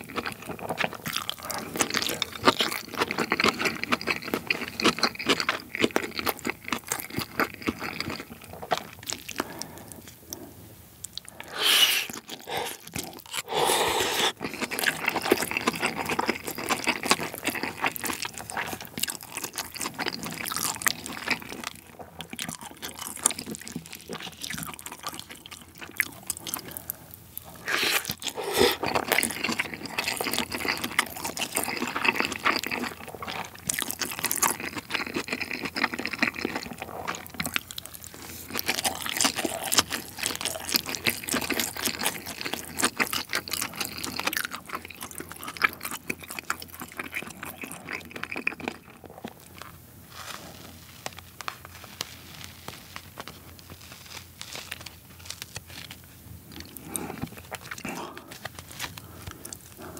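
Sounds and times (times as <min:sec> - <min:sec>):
wet chewing and lip smacking: 0:00.0 - 0:10.4, 0:11.0 - 0:49.8, 0:54.6 - 0:59.9.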